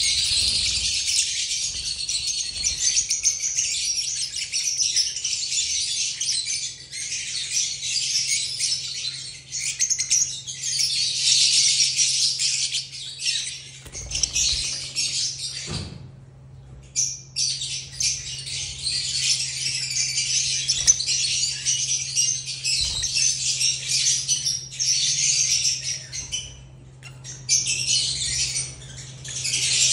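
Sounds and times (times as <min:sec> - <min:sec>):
lovebirds twittering: 0:00.0 - 0:29.9
steady low hum: 0:13.4 - 0:29.9.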